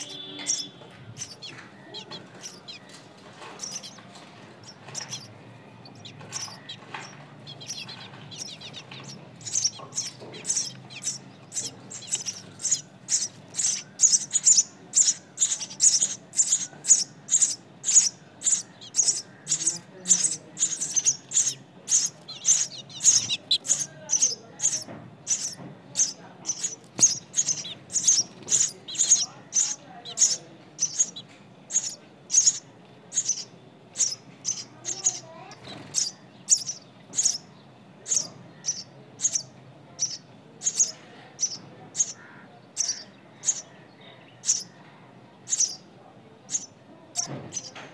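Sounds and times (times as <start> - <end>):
nestling birds begging calls: 0.0 - 47.9.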